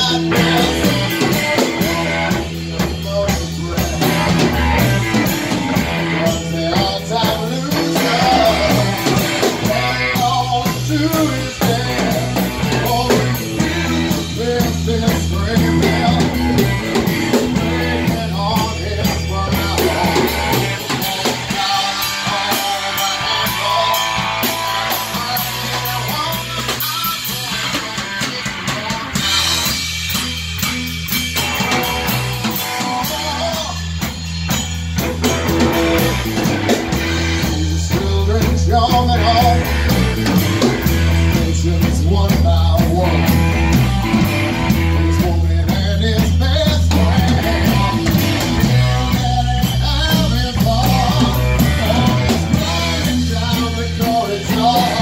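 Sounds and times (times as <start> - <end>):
man singing into a microphone: 0.0 - 29.8, 31.8 - 34.2, 36.0 - 55.0
bass line: 0.0 - 55.0
rock band playing live: 0.0 - 55.0.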